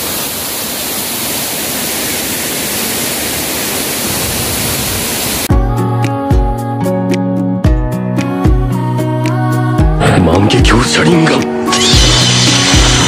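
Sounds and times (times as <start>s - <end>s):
waterfall crashing onto rocks: 0.0s - 5.5s, 11.8s - 13.0s
music with drumbeat and bass: 5.5s - 13.0s.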